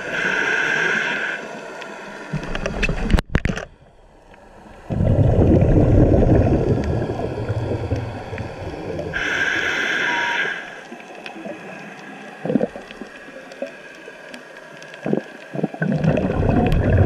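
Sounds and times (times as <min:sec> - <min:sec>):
regulator inhale hiss: 0:00.0 - 0:02.3, 0:06.6 - 0:15.5
exhaled bubbles underwater: 0:04.6 - 0:09.8, 0:10.9 - 0:17.0.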